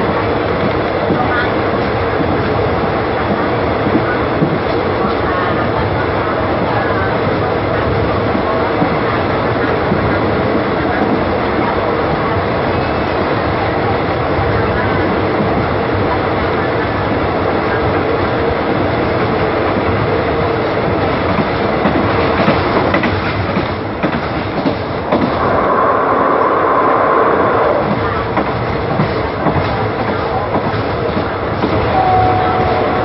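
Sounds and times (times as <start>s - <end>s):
train wheels rumbling on rails: 0.0s - 33.0s
steady whine: 25.2s - 28.2s.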